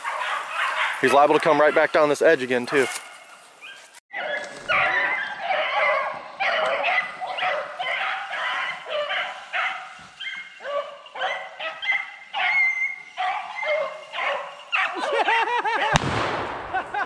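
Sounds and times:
dog yelping: 0.0s - 1.9s, 2.8s - 16.0s
dogs baying: 0.0s - 2.1s, 2.8s - 16.0s.

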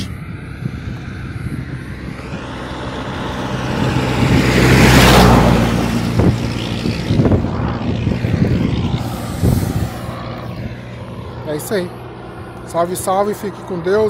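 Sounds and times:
vehicle passing by: 0.0s - 14.0s.

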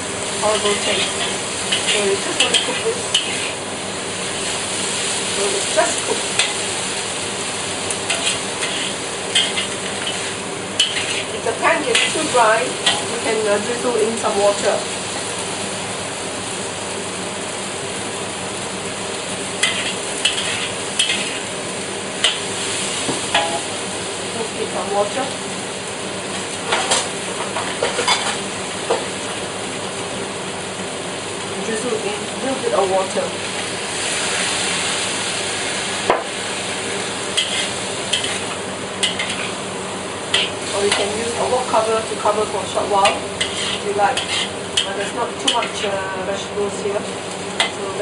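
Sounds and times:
vegetables sizzling in a wok: 0.0s - 48.0s
metal spatula scraping wok: 0.4s - 3.6s, 8.0s - 13.2s, 19.6s - 21.5s, 37.3s - 39.6s, 40.3s - 41.8s, 42.8s - 45.9s.

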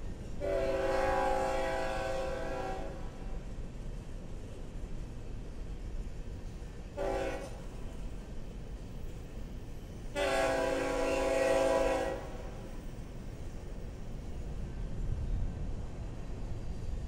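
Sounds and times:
locomotive air horn blasts: 0.4s - 3.1s, 7.0s - 7.6s, 10.2s - 12.6s.

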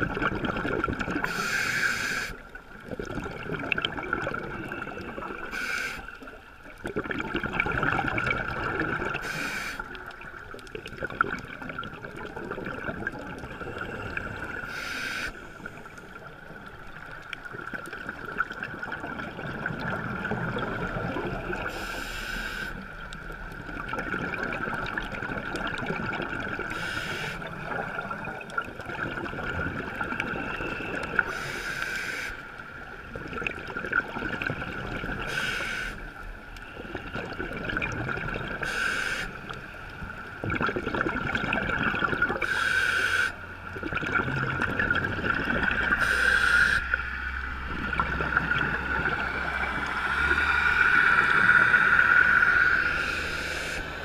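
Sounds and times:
gurgling exhaled bubbles: 0.0s - 31.5s, 32.8s - 42.6s, 43.7s - 54.0s
regulator inhalation hiss: 1.2s - 2.4s, 5.4s - 6.2s, 9.2s - 10.0s, 14.6s - 15.6s, 21.7s - 22.8s, 26.7s - 27.5s, 31.2s - 32.5s, 35.3s - 36.0s, 38.6s - 39.4s, 42.4s - 43.4s, 46.0s - 47.0s, 50.3s - 54.0s
steady high hum: 44.6s - 54.0s.

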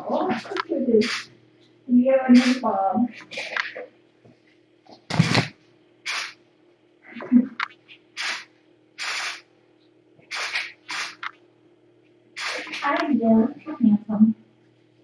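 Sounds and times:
cat breathy noise bursts: 8.2s - 9.4s.

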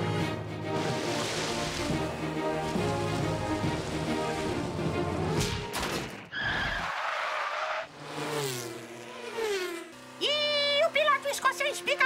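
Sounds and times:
cartoon race car rushing and skidding: 6.3s - 12.0s.

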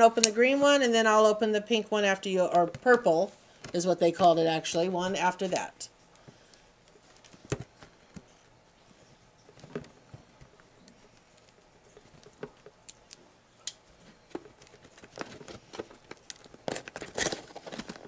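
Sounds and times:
box being handled and opened: 14.0s - 18.0s.

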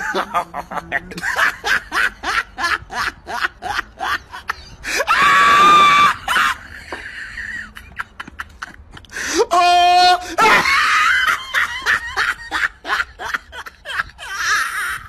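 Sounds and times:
people laughing: 0.0s - 9.5s, 10.2s - 15.0s
high-pitched scream: 4.9s - 6.4s.

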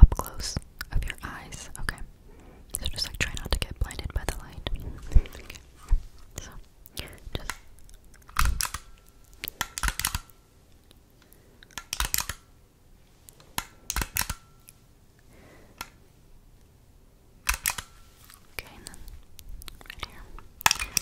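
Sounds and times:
camera mechanical clicking: 7.4s - 10.4s, 11.6s - 12.5s, 13.3s - 14.5s, 17.4s - 17.9s, 20.4s - 21.0s.

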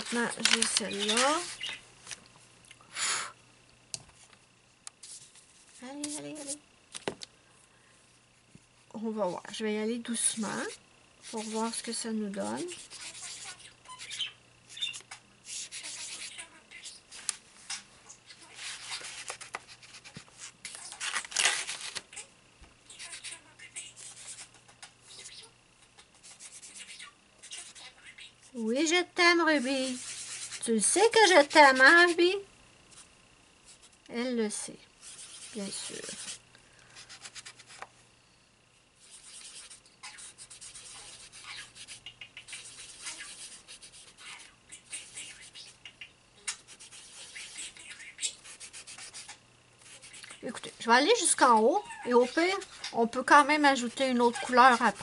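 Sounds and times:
pastel rubbing on paper: 5.0s - 6.6s, 11.2s - 11.8s, 12.5s - 14.1s, 14.8s - 17.4s, 18.4s - 21.2s, 24.0s - 24.6s, 26.2s - 27.9s, 29.5s - 32.2s, 35.0s - 36.4s, 37.0s - 37.9s, 39.0s - 45.8s, 46.5s - 50.5s, 53.5s - 55.0s.

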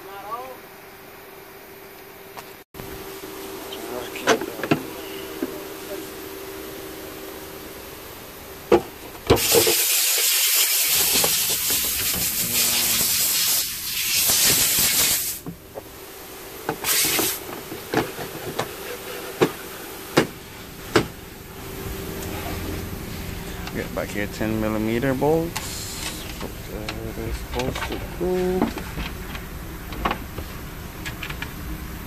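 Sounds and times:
rustling and rubbing hiss: 9.4s - 15.4s, 16.8s - 20.8s, 24.1s - 26.7s.

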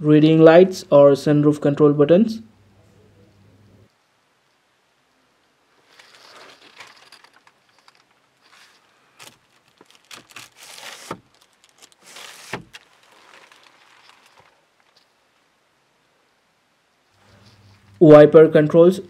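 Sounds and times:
plastic wrap crinkling: 5.8s - 15.1s.

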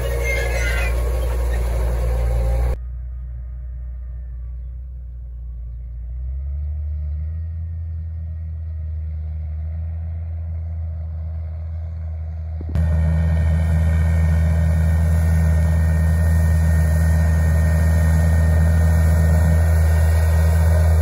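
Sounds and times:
distant tractor engine drone: 0.0s - 21.0s.

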